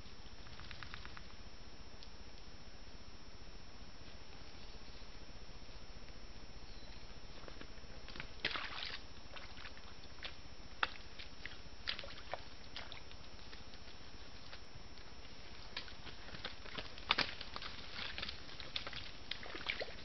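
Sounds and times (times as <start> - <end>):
microphone hiss: 0.0 - 20.0
hooves splashing in mud: 7.4 - 20.0.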